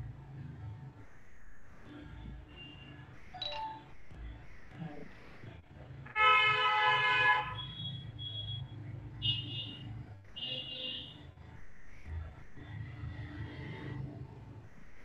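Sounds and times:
faint high beeps: 3.3s - 3.9s.

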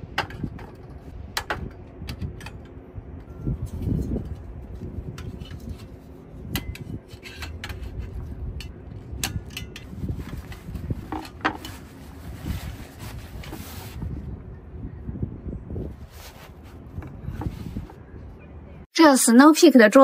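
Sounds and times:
wind rumble on microphone: 0.0s - 18.9s
fabric bag rustling: 10.0s - 14.2s, 16.0s - 17.9s.

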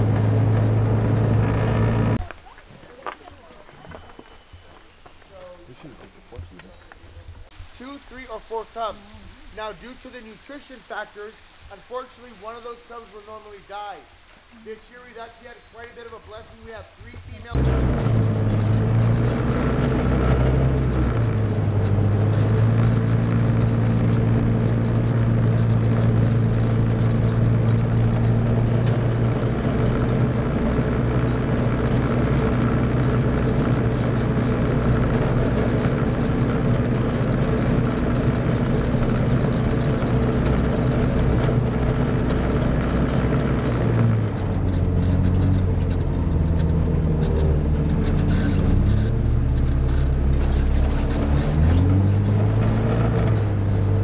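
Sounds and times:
atv engine running: 0.0s - 2.3s, 16.3s - 54.0s.

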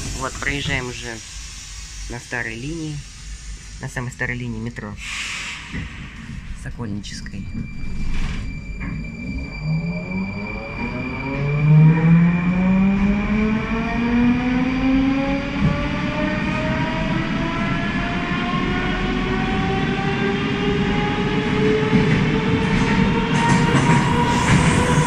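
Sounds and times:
train wheels rumbling on rails: 0.0s - 11.6s, 12.5s - 25.0s
train traction motors whining: 7.7s - 25.0s.

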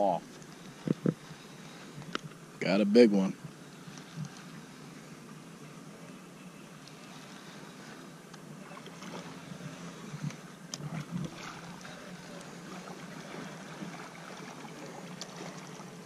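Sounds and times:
faint water noise: 0.0s - 16.0s.

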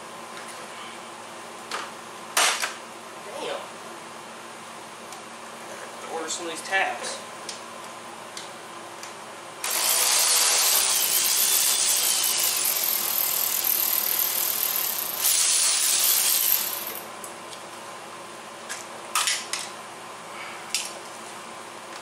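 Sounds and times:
ratchet wrench clicking: 9.6s - 17.0s.

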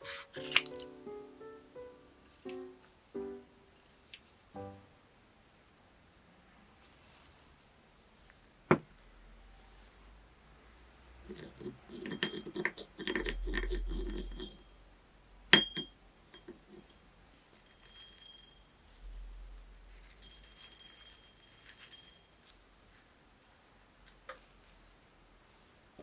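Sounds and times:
packet rustling: 0.0s - 0.9s.

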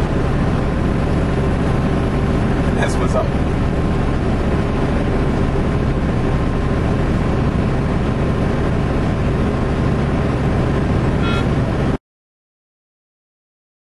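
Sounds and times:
truck engine drone and road noise: 0.0s - 12.0s
short high beep: 11.2s - 11.6s.

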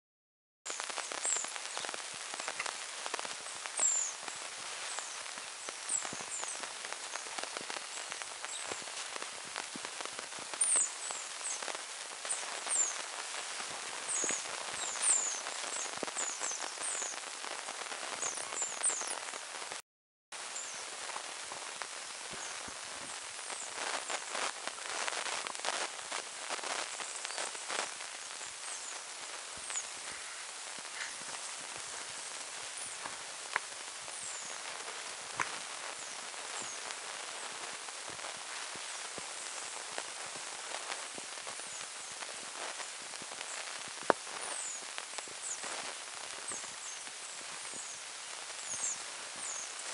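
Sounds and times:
animals scratching in dry grass: 28.8s - 40.3s.

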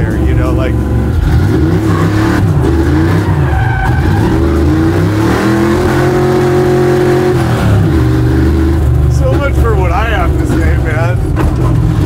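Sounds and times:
engine revving hard: 0.0s - 12.0s
tires skidding and squealing: 1.1s - 8.8s.

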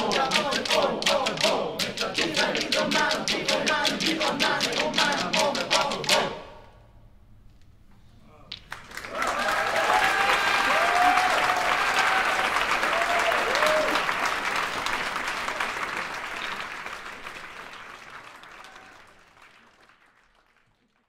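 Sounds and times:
audience applauding: 8.6s - 21.0s
whooping cheers: 9.0s - 14.3s, 18.4s - 19.2s.

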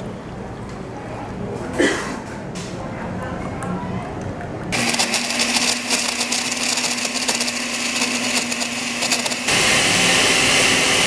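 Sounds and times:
fruit crackling in blender: 4.7s - 11.0s
blender motor running: 4.8s - 11.0s.

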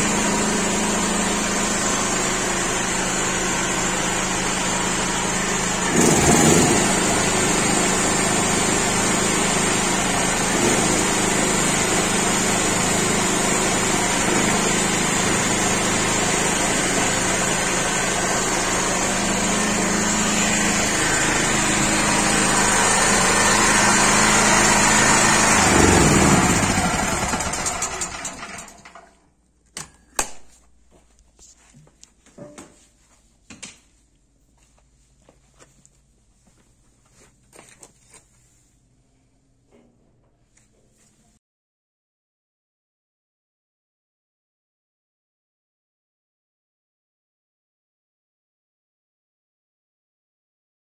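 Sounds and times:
metal-cutting circular saw running: 0.0s - 29.1s.

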